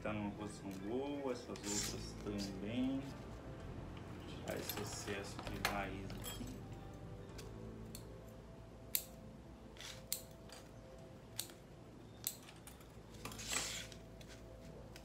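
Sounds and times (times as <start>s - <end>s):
scissors snipping: 9.8s - 10.7s.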